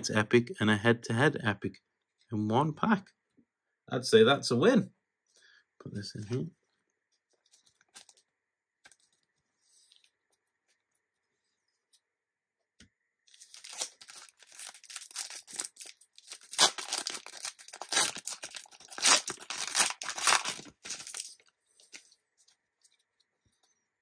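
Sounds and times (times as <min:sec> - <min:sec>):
card pack wrapper tearing: 0:13.3 - 0:21.4.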